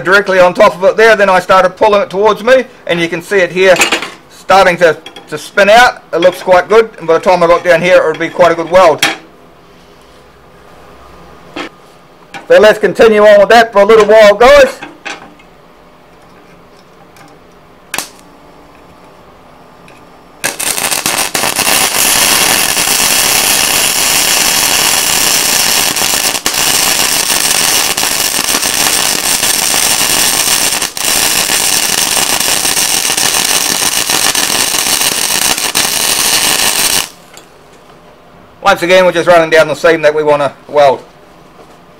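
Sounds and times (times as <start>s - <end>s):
welding arc: 18.0s - 18.2s, 20.4s - 37.3s.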